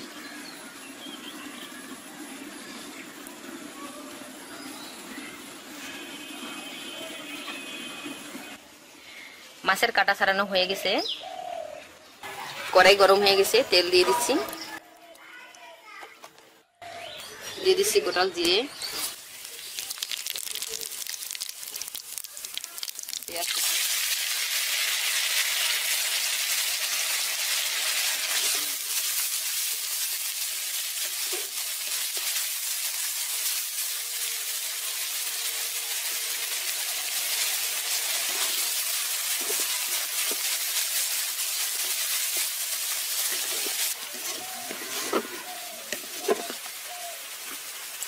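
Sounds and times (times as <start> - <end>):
onions sizzling in hot oil: 0.0 - 8.6, 17.7 - 48.0
wooden spatula scraping pan: 38.2 - 40.5, 43.1 - 46.7.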